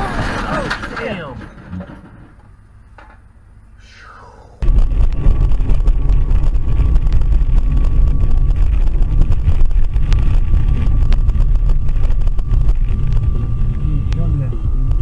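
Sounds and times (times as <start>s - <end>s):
knocks and rattles on rough road: 0.0s - 3.2s, 4.6s - 15.0s
car engine rumble inside cabin: 4.6s - 15.0s.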